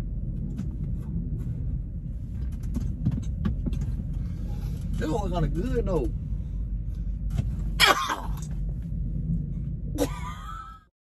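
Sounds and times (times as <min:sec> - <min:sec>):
faint clicks and rustles: 0:00.3 - 0:05.1.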